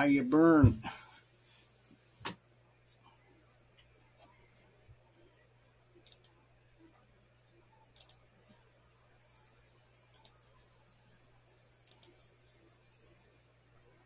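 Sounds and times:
computer mouse clicking: 6.0 - 6.4, 7.9 - 8.2, 10.1 - 10.4, 11.8 - 12.3.

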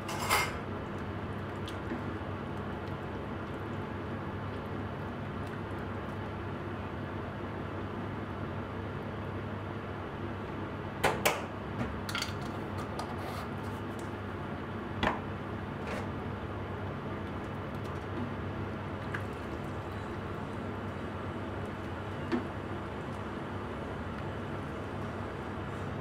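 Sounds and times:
stew simmering: 0.6 - 7.2, 16.3 - 26.0.

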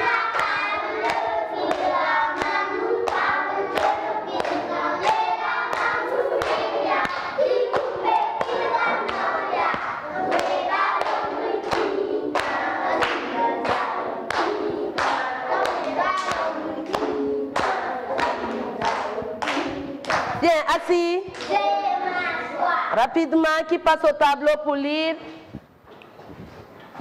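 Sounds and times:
children singing in chorus: 0.0 - 20.4
hands clapping on a beat: 0.0 - 20.4.

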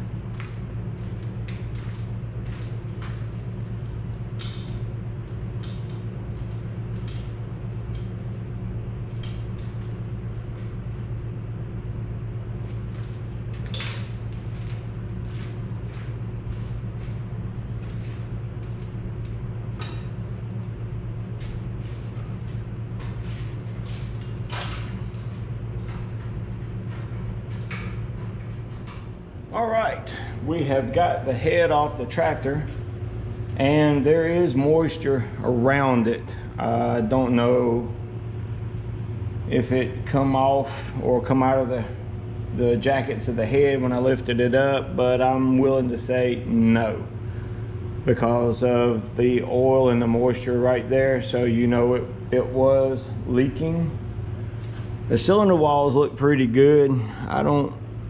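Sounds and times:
steady low hum: 0.0 - 58.0
metallic clinks and knocks: 13.6 - 14.8.

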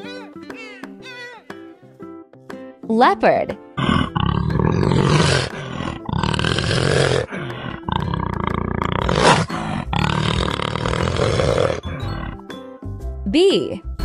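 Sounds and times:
leopard roaring: 3.8 - 12.4.

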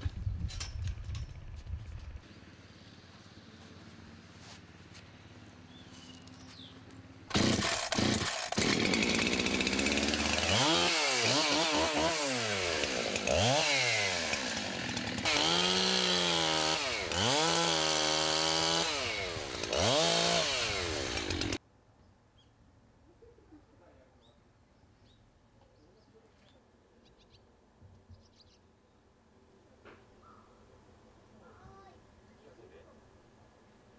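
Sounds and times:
chainsaw engine revving: 7.3 - 21.6.

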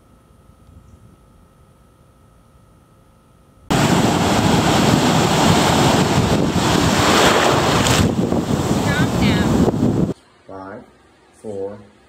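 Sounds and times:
ocean surf breaking: 3.7 - 10.1
wind noise on microphone: 3.7 - 10.2.

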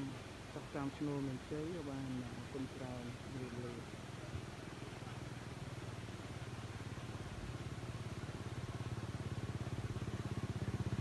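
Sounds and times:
small engine running: 4.9 - 11.0.

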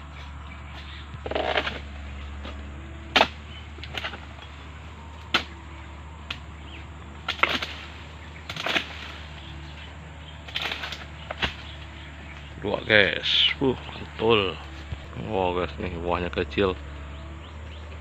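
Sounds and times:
blade chopping into palm stalks: 0.7 - 4.6, 5.2 - 5.6, 7.2 - 9.5, 10.4 - 12.4.

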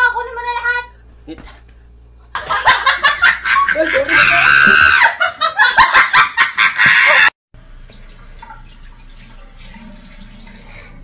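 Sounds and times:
person shrieking laughter: 3.5 - 7.4.

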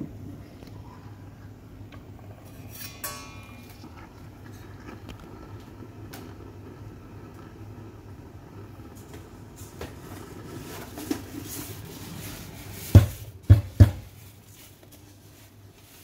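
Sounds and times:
portafilter knocking: 12.8 - 14.1.

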